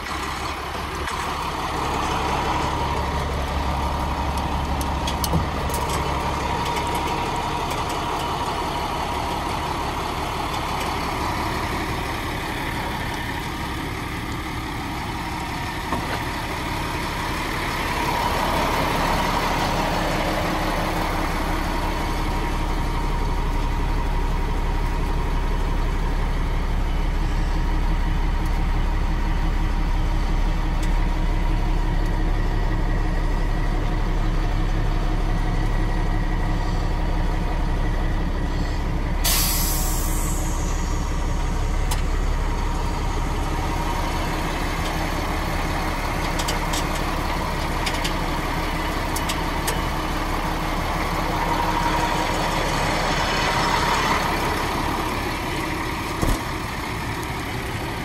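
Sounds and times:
diesel truck engine idling: 0.0 - 58.0
compressed air hiss: 39.2 - 40.9.

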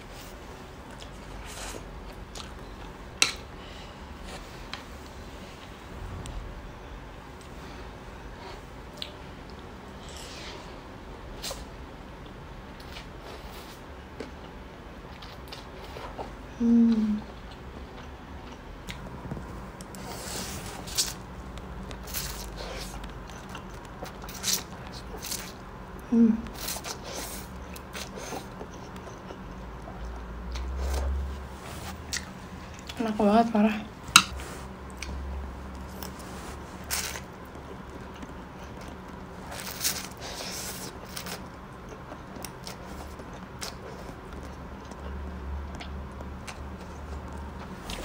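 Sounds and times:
slurping and chewing noodles: 35.8 - 48.0.

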